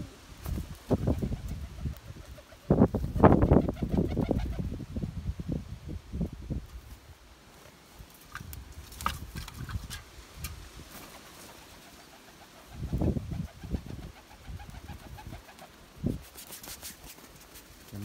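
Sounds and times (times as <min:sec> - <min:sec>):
wind rumbling on microphone: 0:00.0 - 0:07.2, 0:08.3 - 0:11.0, 0:12.7 - 0:16.3
pigeons cooing: 0:11.0 - 0:15.8.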